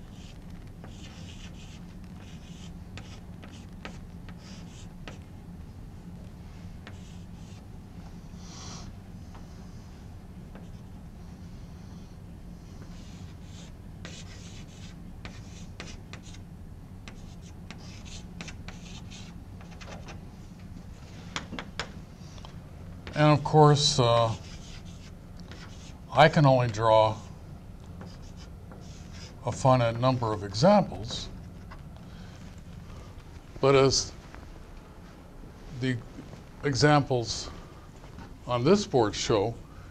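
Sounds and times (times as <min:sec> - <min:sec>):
steady low hum: 0:00.0 - 0:39.9
chalk scratching on blackboard: 0:00.1 - 0:05.2, 0:12.8 - 0:16.4, 0:17.1 - 0:20.1, 0:24.2 - 0:26.0, 0:28.0 - 0:29.6.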